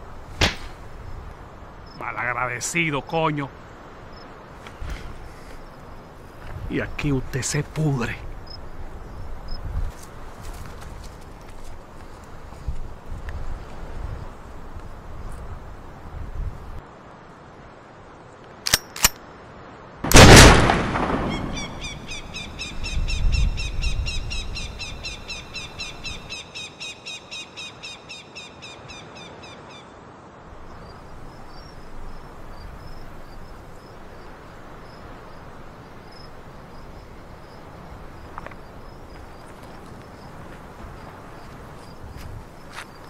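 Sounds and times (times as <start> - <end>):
gunshot: 0.4 - 0.8, 20.1 - 21.7
bird chirping rapidly: 21.2 - 29.6.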